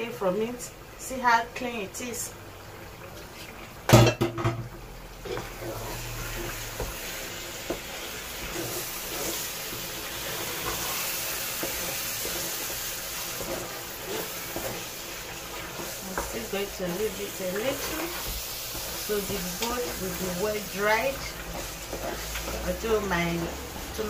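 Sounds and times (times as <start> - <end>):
vegetables sizzling in hot oil: 0.0 - 24.0
wooden spatula stirring: 5.2 - 24.0.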